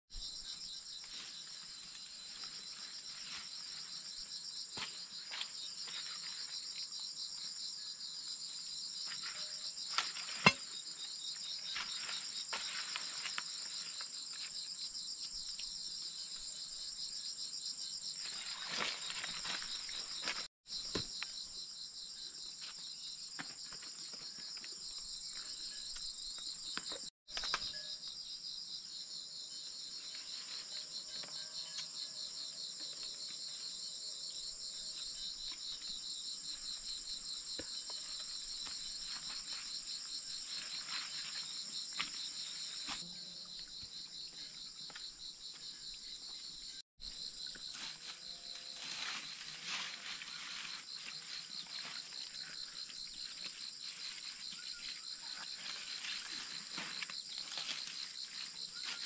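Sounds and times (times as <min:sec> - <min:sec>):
insect chorus trilling: 0:16.5 - 0:59.0.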